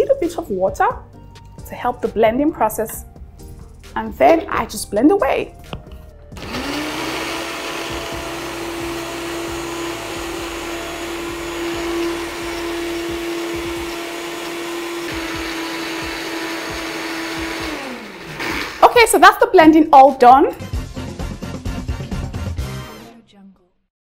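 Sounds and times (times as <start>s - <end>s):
blender motor whining: 6.3s - 19.0s.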